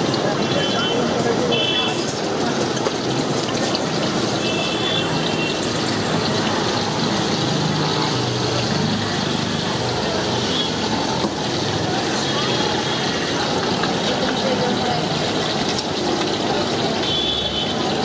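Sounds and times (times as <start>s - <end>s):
food frying in a wok: 0.0s - 18.0s
gas wok burner roaring: 0.0s - 18.0s.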